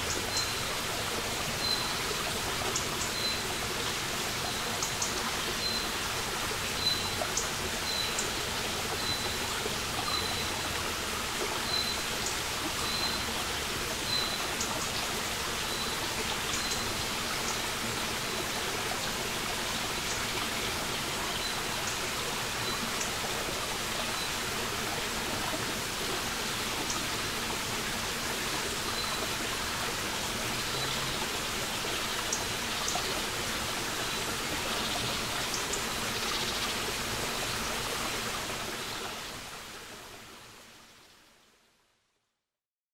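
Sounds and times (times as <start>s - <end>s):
water drips and splashes: 0.0s - 40.4s
brook trickling over rocks: 0.0s - 40.8s.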